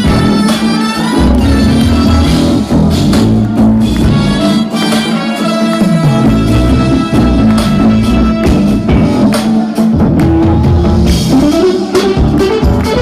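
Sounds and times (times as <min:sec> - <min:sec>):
jazz fusion band playing: 0:00.0 - 0:13.0
low bass line: 0:01.1 - 0:04.7, 0:05.9 - 0:13.0.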